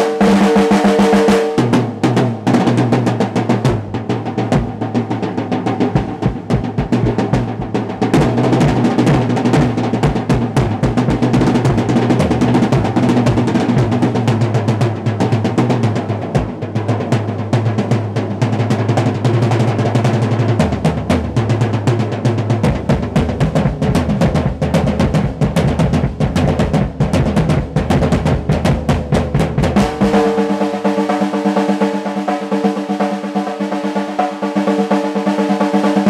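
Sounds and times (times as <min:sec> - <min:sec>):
drum kit solo: 0:00.0 - 0:36.0.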